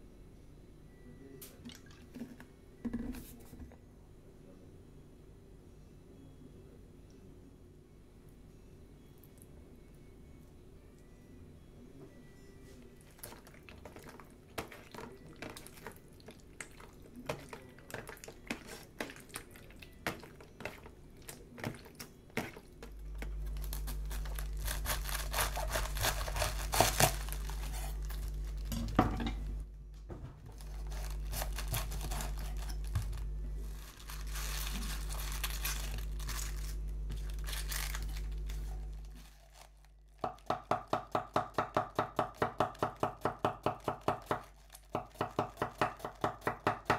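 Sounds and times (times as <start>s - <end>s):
steady low hum: 22.2s - 40.2s
cabbage leaves tearing and crunching: 23.4s - 28.7s, 30.6s - 40.0s
knife chopping on wooden board: 40.2s - 46.9s.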